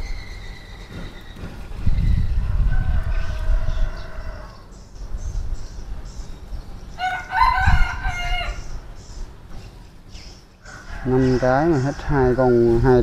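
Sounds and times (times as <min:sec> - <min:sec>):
rooster crowing: 0:02.1 - 0:04.6, 0:07.0 - 0:08.8, 0:10.6 - 0:12.7.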